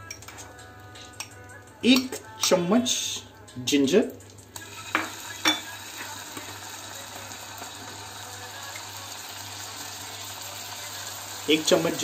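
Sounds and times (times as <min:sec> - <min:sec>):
butter sizzling in a pan: 0:04.4 - 0:12.0.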